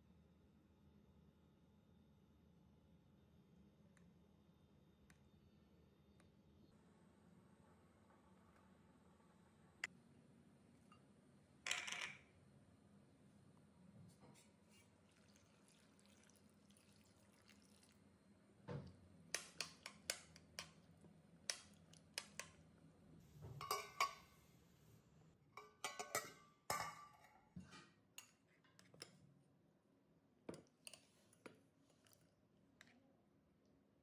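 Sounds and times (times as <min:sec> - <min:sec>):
clinks against steel bowl: 0:23.6 - 0:24.3, 0:25.6 - 0:27.4
spoon clinking on glass bowl: 0:23.6 - 0:24.3, 0:25.6 - 0:27.3.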